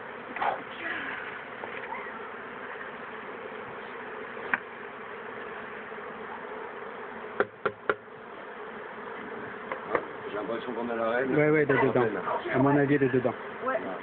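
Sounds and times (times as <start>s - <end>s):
honeybee swarm buzzing: 0.0s - 14.0s
sharp knocks: 7.4s - 8.1s.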